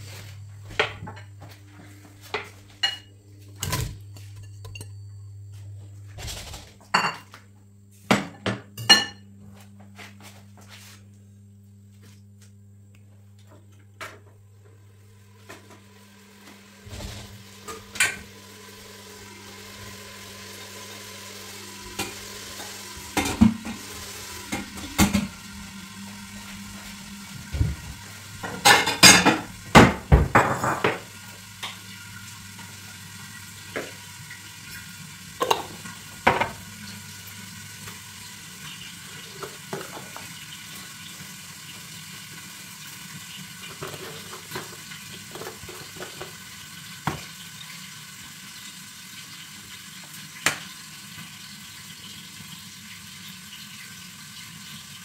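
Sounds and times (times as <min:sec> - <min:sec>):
low electrical hum: 0:00.0 - 0:55.0
pots and utensils clinking: 0:02.3 - 0:05.1, 0:16.9 - 0:18.4, 0:21.8 - 0:25.4, 0:28.4 - 0:31.9, 0:35.4 - 0:36.6
faint sizzle: 0:14.2 - 0:55.0.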